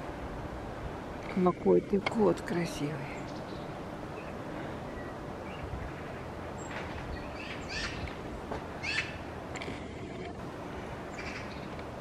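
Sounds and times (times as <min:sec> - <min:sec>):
outdoor background hum: 0:00.0 - 0:12.0
small birds chirping: 0:01.3 - 0:08.2, 0:08.8 - 0:09.3, 0:11.0 - 0:11.8.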